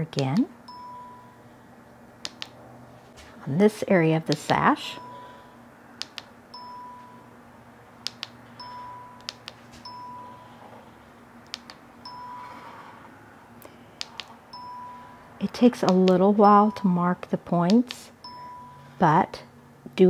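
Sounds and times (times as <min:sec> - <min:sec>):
faint low machine hum: 0:00.0 - 0:20.0
short electronic beeps: 0:12.0 - 0:12.7.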